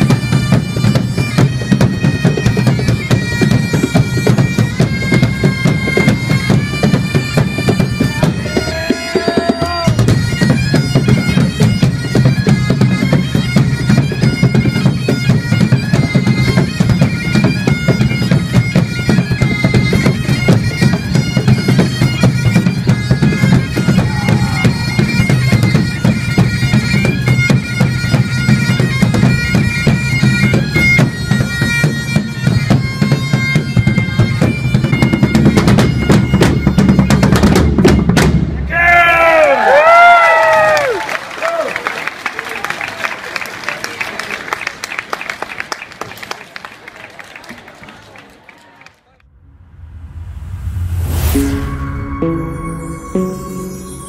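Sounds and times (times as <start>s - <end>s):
bagpipes playing a tune: 0.0s - 38.2s, 51.7s - 54.0s.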